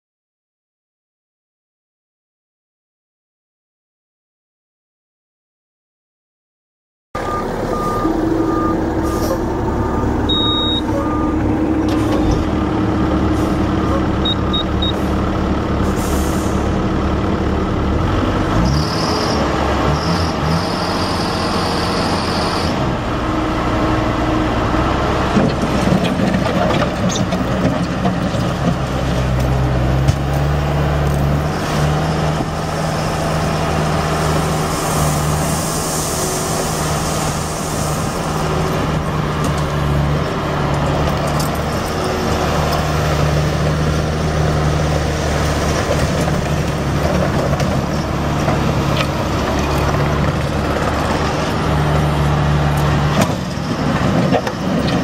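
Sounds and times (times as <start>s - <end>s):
backup alarm beeping: 7.2s - 11.4s, 14.2s - 15.0s
diesel engine running under load: 7.2s - 55.0s.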